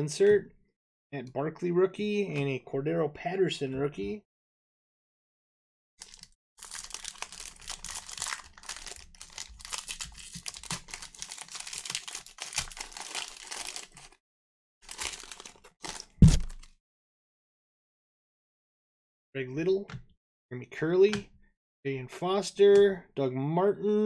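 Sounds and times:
wrappers crinkling and tearing: 6.0 - 14.2, 14.8 - 16.7.

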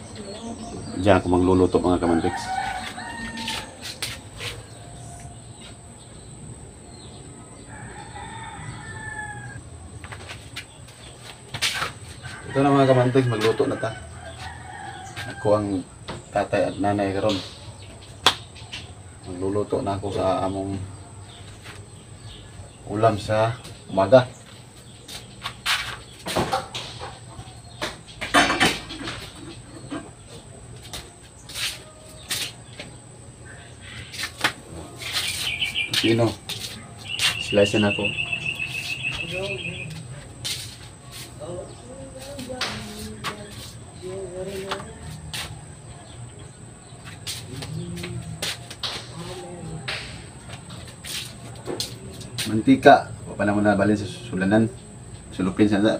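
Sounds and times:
rooster crowing: 2.0 - 5.2, 7.4 - 9.7, 12.1 - 16.0, 44.5 - 46.2.

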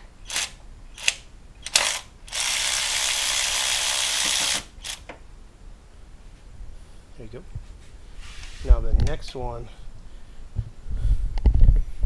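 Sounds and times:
ratchet wrench ratcheting: 0.3 - 5.0.

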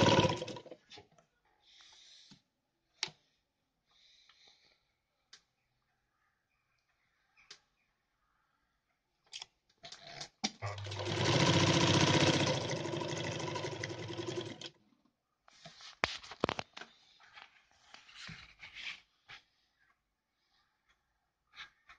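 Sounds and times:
sewing machine stitching: 0.0 - 0.7, 10.6 - 14.8.

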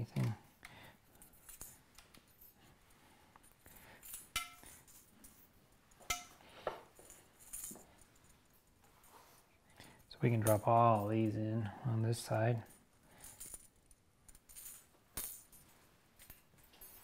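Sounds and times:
metal spokes clinking: 3.4 - 8.8.

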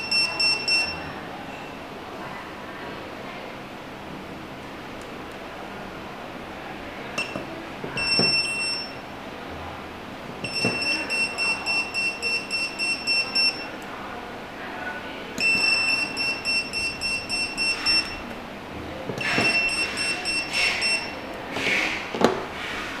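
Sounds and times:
pager rapid high beeps: 0.0 - 1.0, 10.5 - 13.7, 15.4 - 18.2, 19.2 - 21.2.

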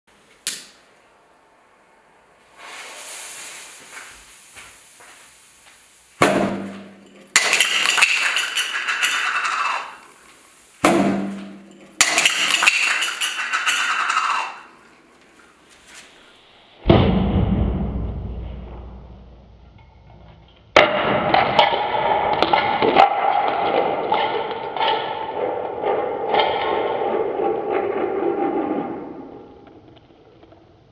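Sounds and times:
fuse hissing: 2.4 - 6.3, 8.4 - 10.9
sharp pop: 6.2 - 8.4, 16.8 - 19.3.

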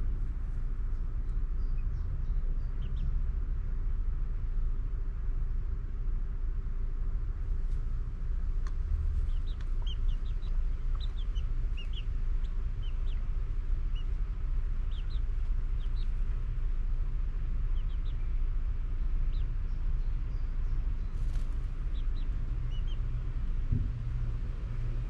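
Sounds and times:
steady low rumble: 0.0 - 25.0
high bird chirps: 9.3 - 13.3.

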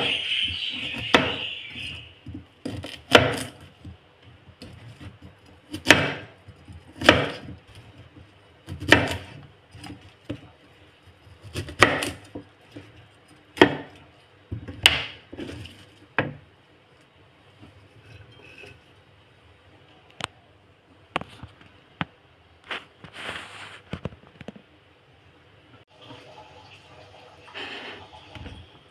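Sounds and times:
knife chopping on cutting board: 2.6 - 3.6, 4.6 - 7.6, 8.7 - 10.5, 11.4 - 12.9, 13.6 - 14.0.

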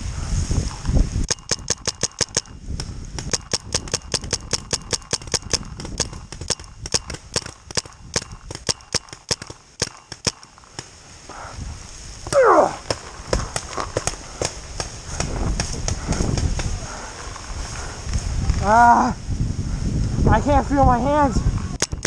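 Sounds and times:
low rumbling handling noise: 0.0 - 18.8
paintball markers firing pops: 0.7 - 10.9, 12.8 - 16.7, 21.8 - 22.0.

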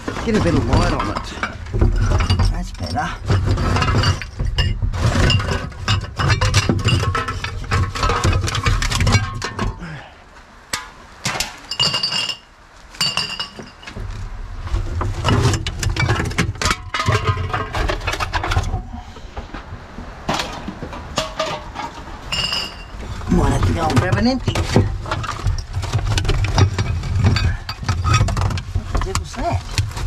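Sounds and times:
bottles and cans clinking: 0.0 - 9.8, 11.3 - 14.0, 15.2 - 18.9, 20.3 - 29.6
glass bottle ringing: 22.3 - 23.0.

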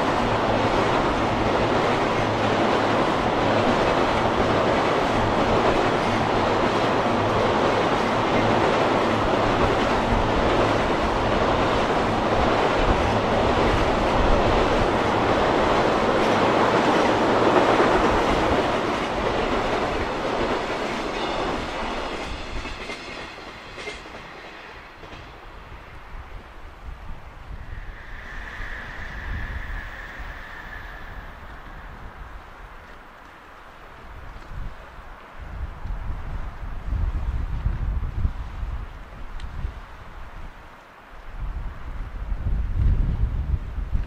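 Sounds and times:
train wheels clattering on bridge: 0.0 - 25.5.

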